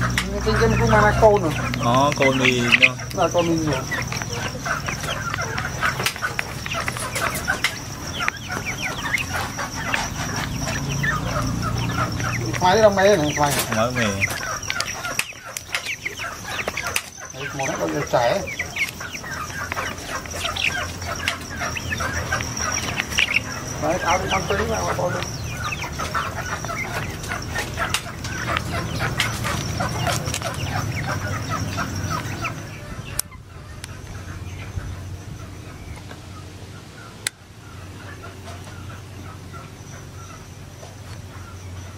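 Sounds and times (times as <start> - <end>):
chicks peeping: 0.0 - 41.9
beaks clicking against dish: 0.1 - 23.4.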